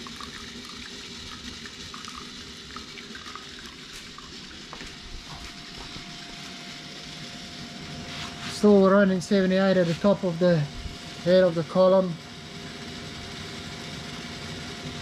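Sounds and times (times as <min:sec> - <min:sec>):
water stream pouring into bucket: 0:00.0 - 0:05.9.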